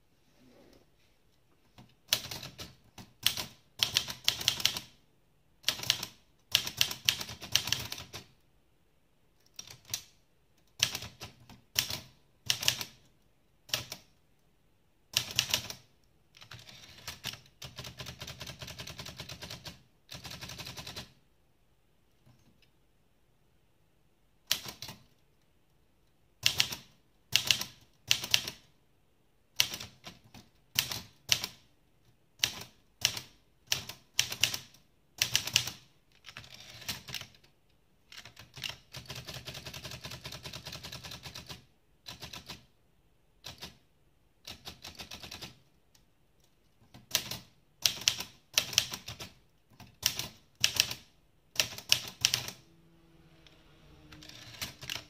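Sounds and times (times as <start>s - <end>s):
manual typewriter typing: 1.8s - 5.0s, 5.6s - 8.3s, 9.4s - 10.1s, 10.7s - 13.0s, 15.1s - 21.2s, 24.5s - 25.1s, 26.4s - 28.7s, 29.6s - 31.6s, 32.4s - 37.5s, 38.1s - 42.7s, 43.4s - 43.8s, 44.4s - 45.6s, 46.8s - 52.6s, 54.1s - 55.0s.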